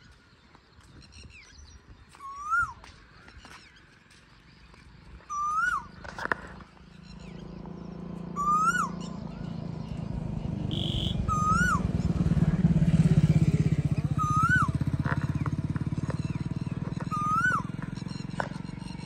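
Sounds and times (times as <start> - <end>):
bird whistled call: 2.1 - 2.9, 5.3 - 6.2, 8.3 - 12.4, 13.4 - 15.4, 16.1 - 19.0
low engine hum: 2.3 - 19.0.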